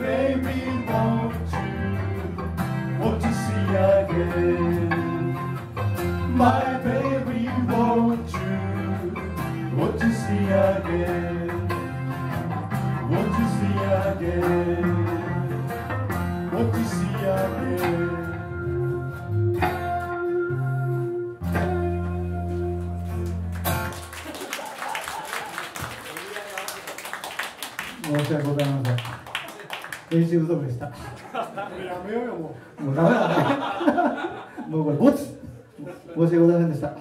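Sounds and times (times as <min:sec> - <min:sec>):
live band guitars playing: 0:00.0 - 0:24.7.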